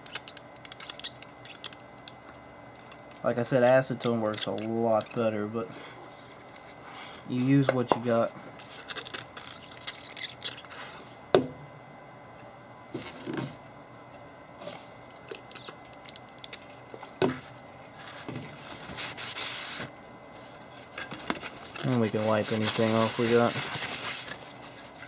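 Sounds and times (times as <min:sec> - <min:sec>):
quiet handling sounds: 0:12.4 - 0:25.0
paper towel rustling: 0:21.6 - 0:25.0.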